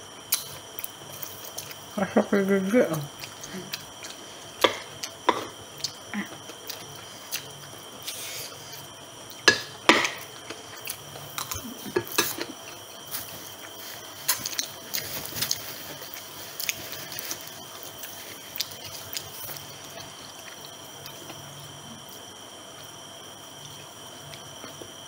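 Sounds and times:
person chewing food: 3.1 - 22.3.

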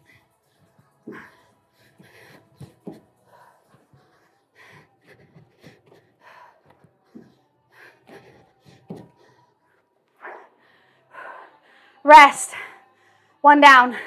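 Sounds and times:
person breathing hard: 0.0 - 13.4
soft thuds on a rug: 8.8 - 9.2.

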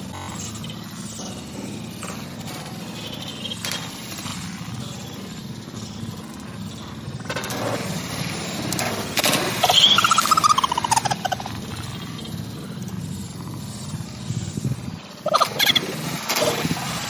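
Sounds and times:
rapid pulsing call: 0.0 - 7.0, 9.3 - 14.1, 15.0 - 16.6.

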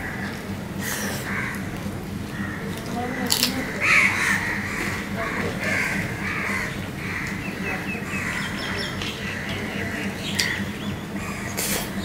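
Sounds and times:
crows cawing: 0.0 - 12.0.

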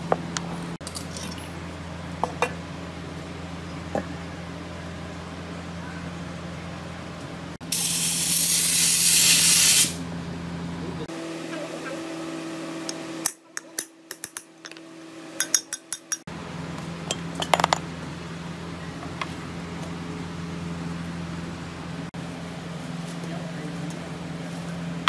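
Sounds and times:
metal tools clinking on metal: 17.1 - 17.8.

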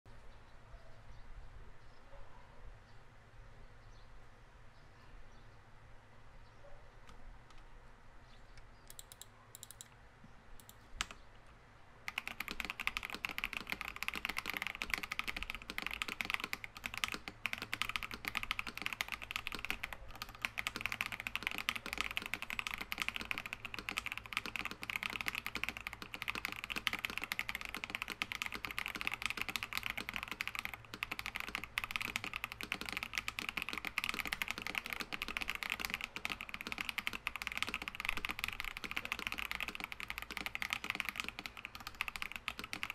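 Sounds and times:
fast typing on mechanical keyboard: 8.9 - 9.9, 12.1 - 42.9
keyboard key clicks: 8.9 - 9.9, 10.6 - 11.2, 12.1 - 42.9.

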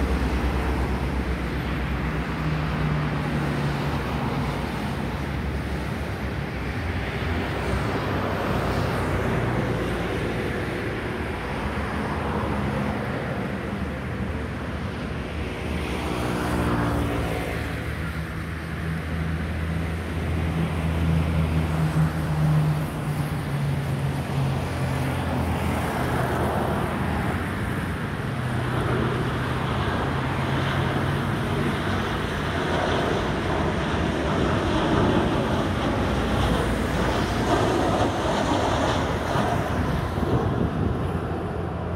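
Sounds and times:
jet airliner engines: 0.0 - 41.9
road traffic: 0.0 - 41.9.

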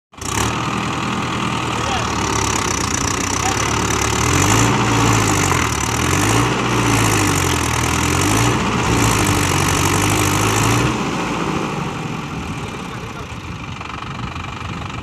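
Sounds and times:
tractor diesel engine running: 0.1 - 15.0.

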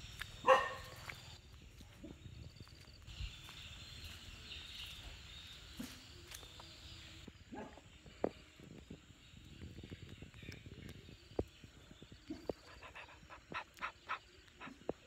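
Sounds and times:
wind rumble on microphone: 0.0 - 5.4, 7.2 - 15.0
faint animal calls: 12.2 - 15.0.

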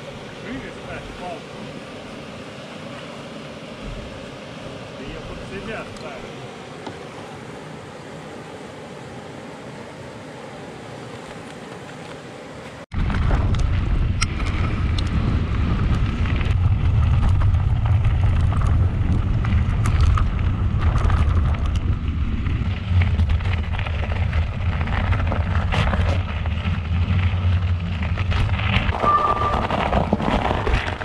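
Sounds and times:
bike clicks and rattles over bumps: 11.1 - 31.0
wind buffeting microphone: 12.9 - 31.0.

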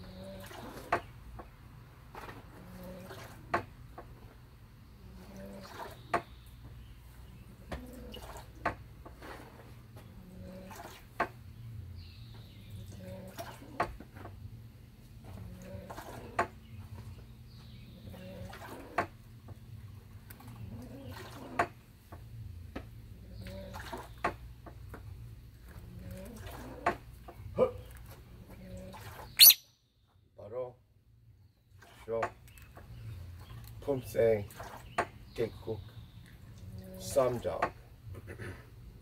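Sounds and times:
faint bird chirps: 29.3 - 29.9.

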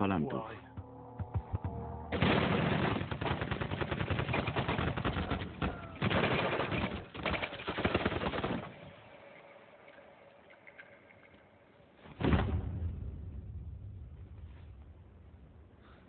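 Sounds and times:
automatic rifle fire: 2.1 - 8.8.

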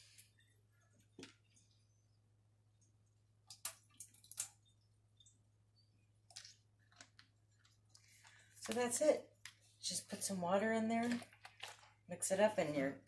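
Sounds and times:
plastic clicks and rustles: 6.3 - 9.6, 11.0 - 12.0.

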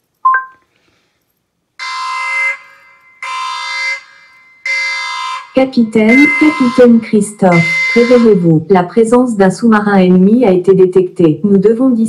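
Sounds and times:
alarm buzzer blasts: 1.8 - 8.6.

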